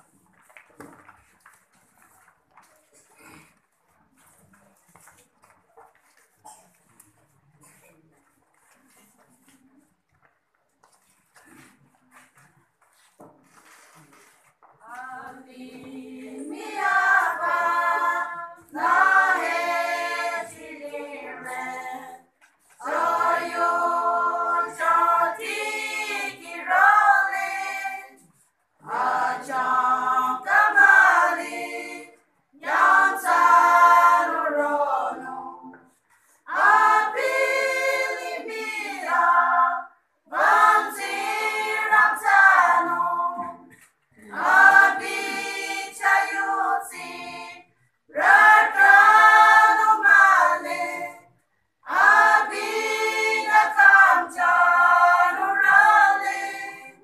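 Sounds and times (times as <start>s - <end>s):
women's choir singing unaccompanied: 14.8s - 57.0s.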